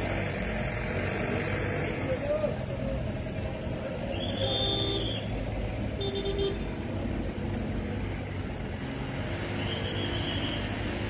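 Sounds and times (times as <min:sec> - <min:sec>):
traffic engine rumble: 0:00.0 - 0:11.0
car horn toots: 0:04.2 - 0:05.2.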